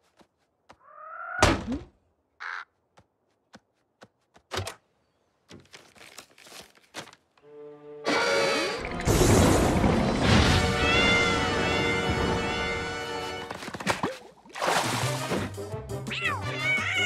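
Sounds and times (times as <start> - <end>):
cartoon crow caw: 0.8 - 1.5, 2.4 - 2.8
rapid paper rustling: 5.6 - 7.2.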